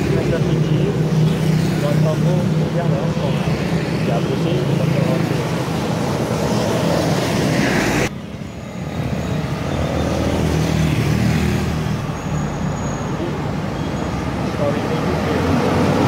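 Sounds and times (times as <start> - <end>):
motorcycles passing: 0.0 - 16.0
traffic noise: 0.0 - 16.0
bus passing on wet road: 8.8 - 16.0.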